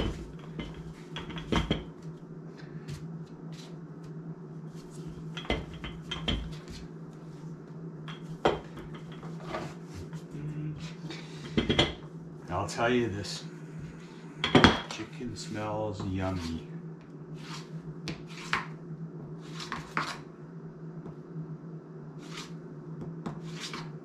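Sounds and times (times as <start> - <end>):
steady low hum: 0.0 - 24.0.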